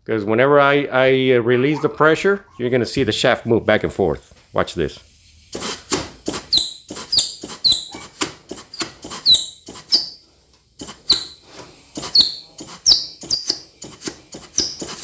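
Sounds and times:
air blow gun bursts: 4.5s - 15.0s.

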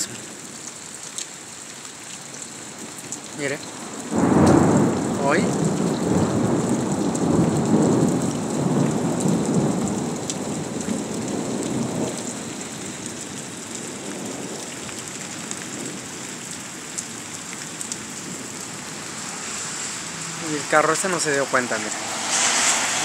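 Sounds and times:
steady rain: 0.0s - 23.0s
thunder rumbling: 4.0s - 16.6s, 17.7s - 23.0s.

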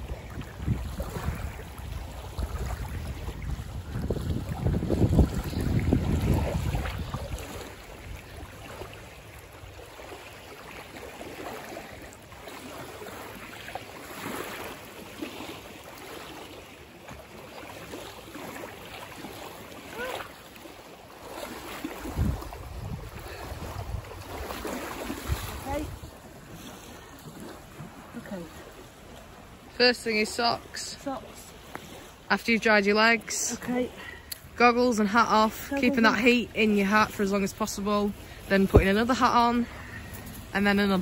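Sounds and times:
wind buffeting microphone: 0.0s - 8.8s, 21.8s - 26.6s
person wading and splashing: 0.0s - 29.8s, 33.1s - 41.0s
lake water lapping and splashing: 0.0s - 41.0s.

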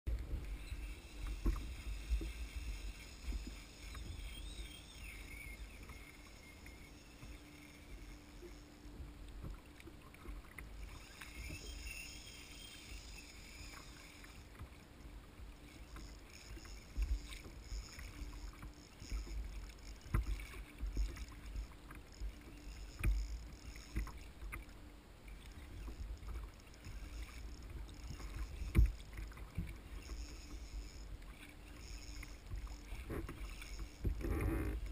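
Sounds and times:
water sloshing against hull: 0.1s - 34.9s.

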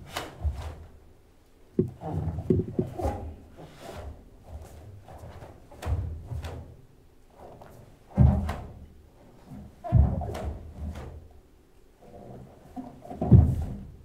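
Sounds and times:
staff swishing through air: 0.0s - 0.9s
bare feet stamping on wooden floor: 1.8s - 3.0s.

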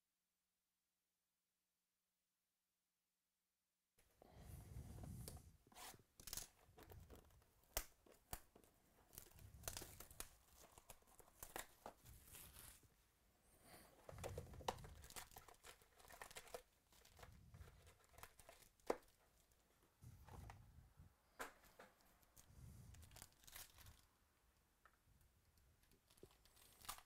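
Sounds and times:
plastic shrink-wrap crinkling: 6.2s - 12.8s, 14.1s - 19.6s, 22.9s - 24.1s, 25.8s - 27.0s.

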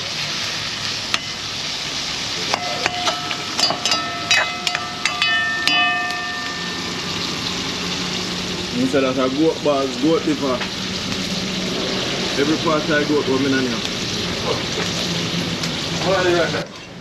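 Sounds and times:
food sizzling in a pot: 0.0s - 17.0s
metal utensil knocking on a pot: 2.5s - 7.1s.

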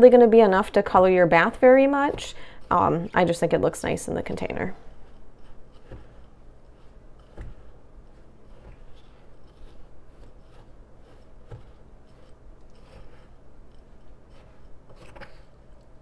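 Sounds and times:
salt scraping glass bowl: 4.9s - 15.8s.

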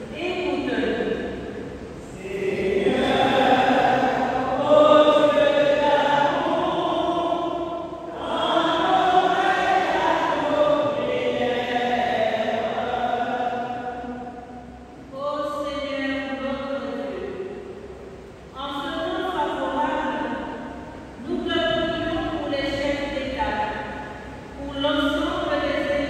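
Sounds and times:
group chanting a sung response: 2.0s - 14.8s.

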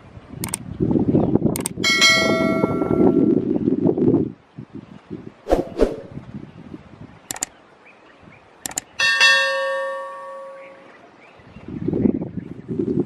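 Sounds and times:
mouse clicks: 0.4s - 0.6s, 1.6s - 1.8s, 7.3s - 7.5s, 8.6s - 8.9s
notification bell ding: 1.9s - 3.4s, 9.0s - 10.9s.

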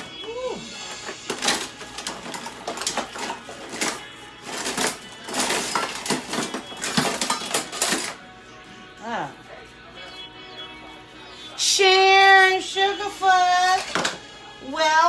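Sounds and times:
objects clattering and rustling: 0.0s - 8.2s, 13.5s - 14.3s.

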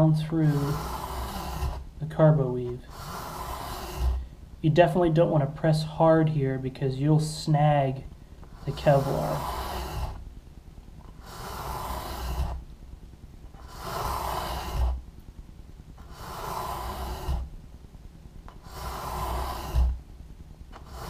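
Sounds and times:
hand file rasping: 0.0s - 4.4s, 8.4s - 10.3s, 11.1s - 12.7s, 13.5s - 15.1s, 16.0s - 17.6s, 18.5s - 20.0s, 20.7s - 21.0s.

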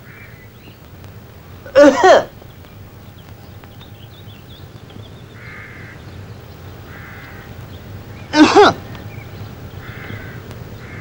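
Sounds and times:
crow cawing: 0.0s - 0.5s, 5.3s - 6.1s, 6.8s - 7.6s, 9.8s - 11.0s
faint background noise: 0.0s - 11.0s.

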